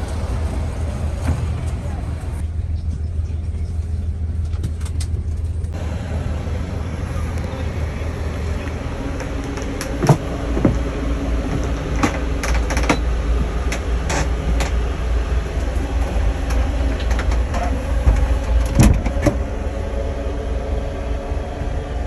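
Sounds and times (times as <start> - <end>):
bus engine rumble from inside: 0.0 - 22.0.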